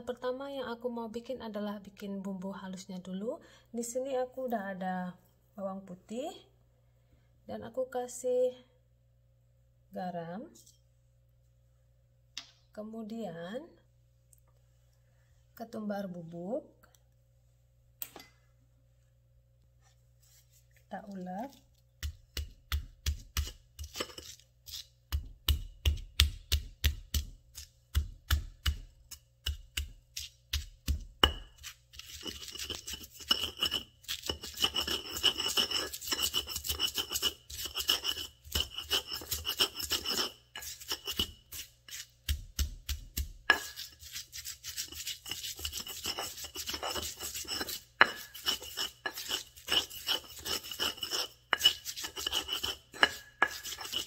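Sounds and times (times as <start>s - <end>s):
pestle pounding in mortar: 22.0s - 24.2s, 25.1s - 54.0s
pestle grinding in mortar: 22.0s - 54.0s.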